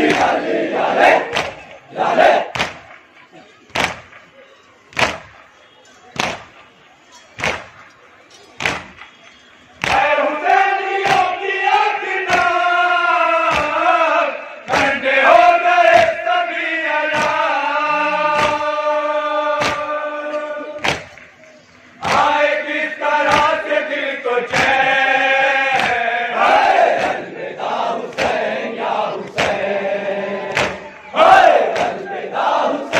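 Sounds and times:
men chanting a lament: 0.0s - 2.6s, 9.8s - 21.2s, 22.0s - 32.9s.

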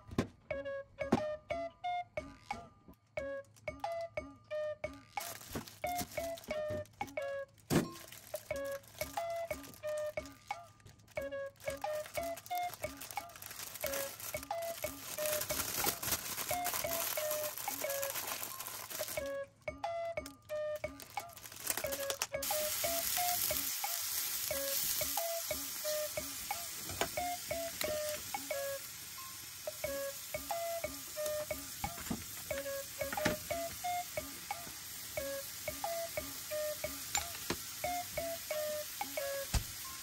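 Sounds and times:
plucked background music: 0.0s - 40.0s
food sizzling in a frying pan: 11.8s - 19.3s, 21.5s - 40.0s.

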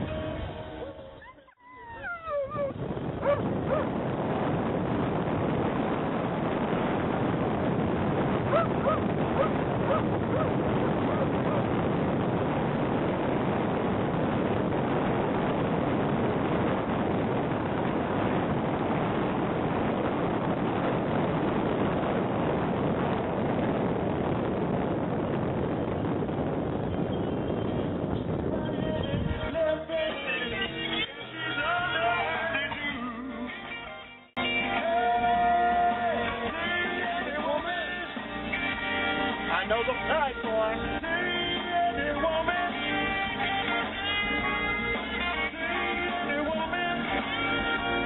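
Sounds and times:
wind rushing through car window: 1.6s - 31.1s
car road noise: 2.2s - 32.8s.

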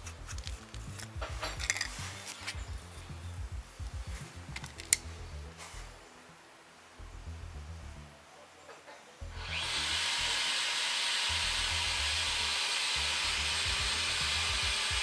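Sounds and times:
power tool whining: 9.2s - 15.0s.

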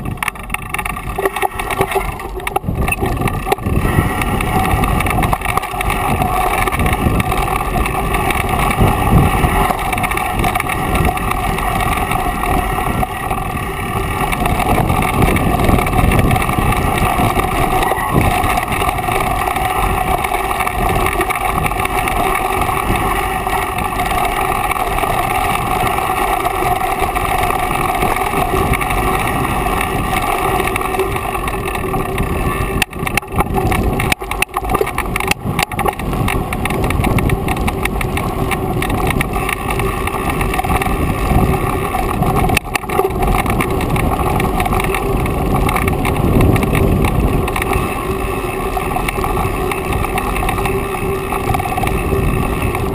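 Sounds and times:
bike tyres and frame rattling: 0.0s - 52.9s
wind noise on microphone: 0.0s - 52.9s.

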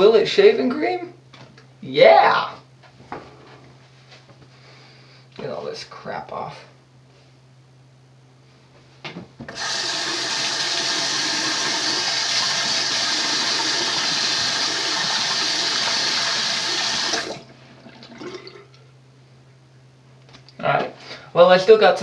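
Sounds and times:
sink tap running hard: 9.5s - 17.5s.

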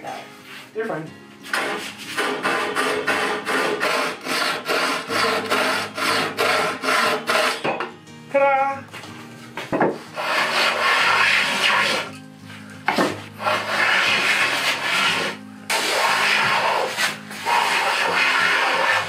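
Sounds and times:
hand plane rasping on wood: 1.5s - 7.6s, 10.0s - 12.2s, 12.9s - 19.0s.

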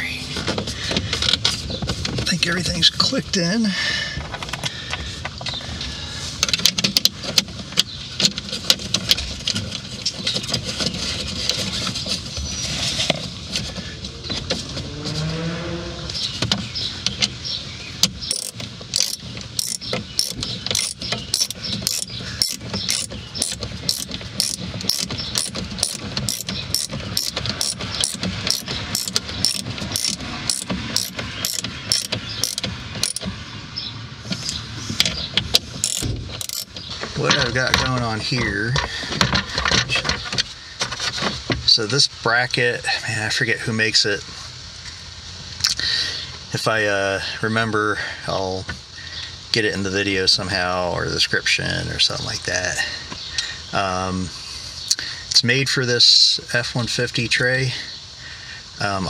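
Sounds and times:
steady mechanical clicking: 18.0s - 33.3s, 35.0s - 36.9s.

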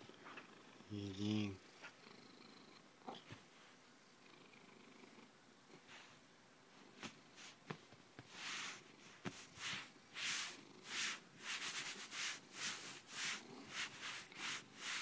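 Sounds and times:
cat fur brushing microphone: 8.2s - 15.0s.

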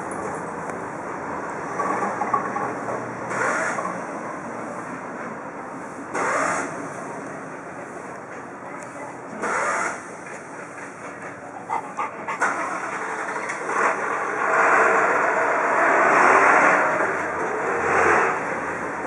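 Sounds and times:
street traffic noise: 0.0s - 19.0s
vehicle passing: 11.4s - 19.0s.

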